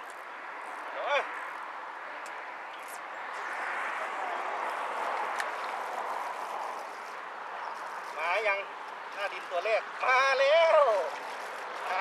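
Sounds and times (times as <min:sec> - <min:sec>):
passing motor vehicle rushing: 0:00.4 - 0:09.4.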